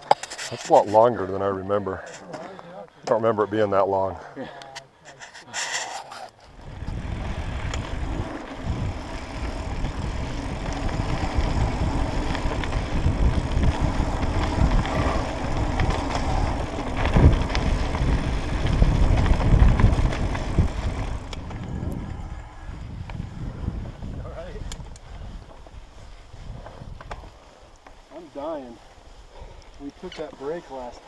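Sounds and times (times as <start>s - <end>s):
bike tyre rumble: 5.6s - 31.0s
wind buffeting microphone: 6.5s - 27.4s
bike rattling over bumps: 6.5s - 28.6s.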